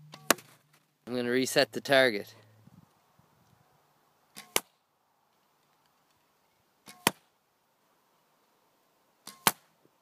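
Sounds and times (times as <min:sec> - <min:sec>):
arrow striking cardboard target: 0:00.1 - 0:00.6, 0:09.3 - 0:09.7.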